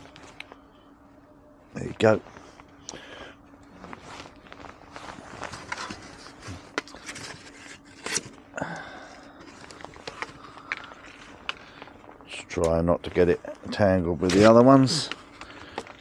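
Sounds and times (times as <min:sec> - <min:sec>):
rustling and scraping of foam board: 0:03.8 - 0:08.4.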